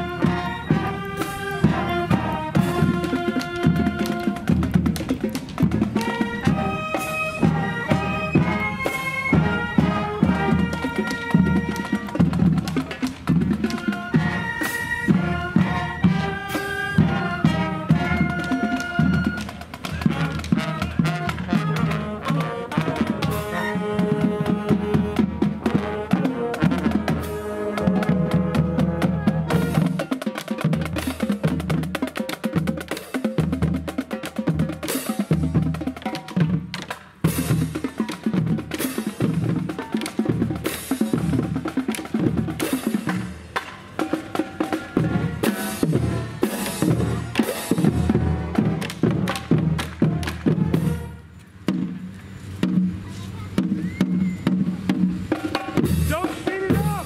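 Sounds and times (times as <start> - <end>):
woodwinds and brass playing: 0.0 - 33.0, 44.0 - 51.6
cymbals: 0.0 - 57.0
bass drums: 45.0 - 57.0.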